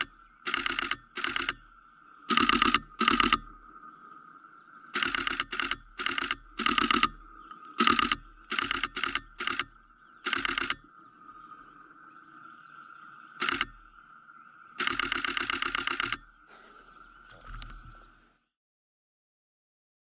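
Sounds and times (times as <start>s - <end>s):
camera shutter clicking in bursts: 0.0s - 1.6s, 2.3s - 3.5s, 5.0s - 7.2s, 7.8s - 10.8s, 13.4s - 13.8s, 14.8s - 16.3s
steady high-pitched hum: 0.0s - 18.2s.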